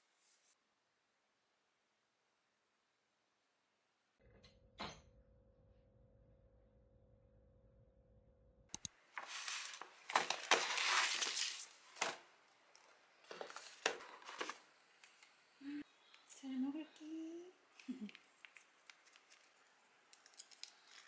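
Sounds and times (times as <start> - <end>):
clicks: 8.7 - 9.0
paper bag rustling: 9.2 - 12.3, 13.2 - 14.7.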